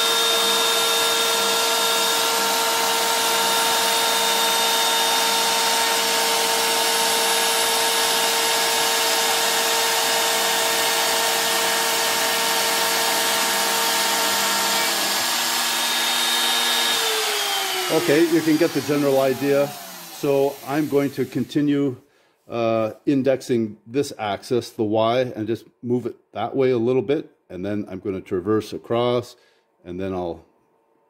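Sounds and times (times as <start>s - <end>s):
router spindle whining over hiss: 0.0s - 21.8s.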